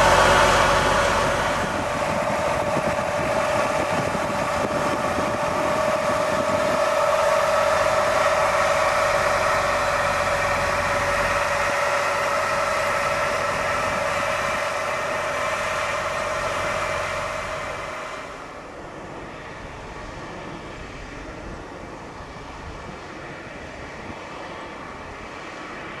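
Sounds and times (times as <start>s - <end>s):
tractor engine running under load: 0.0s - 26.0s.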